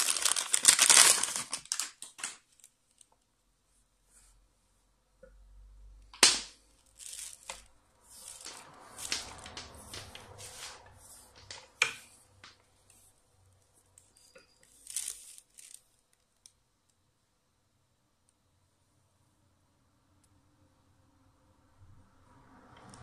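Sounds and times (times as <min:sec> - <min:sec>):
braided cable rustling and scraping: 0:00.0 - 0:04.4, 0:06.7 - 0:16.6.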